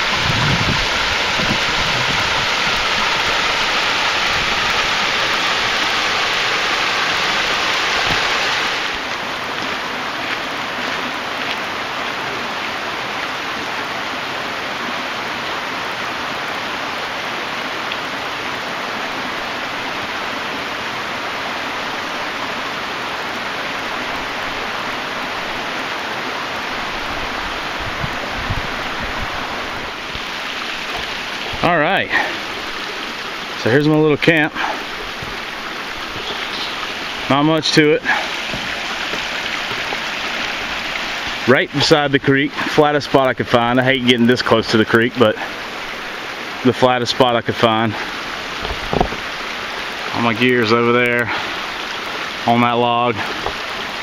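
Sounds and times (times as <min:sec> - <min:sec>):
creek water rushing: 0:00.0 - 0:54.0.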